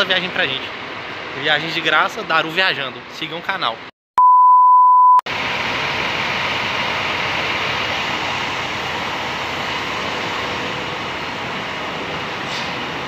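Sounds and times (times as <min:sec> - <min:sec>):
bus engine idling: 0:05.3 - 0:13.0.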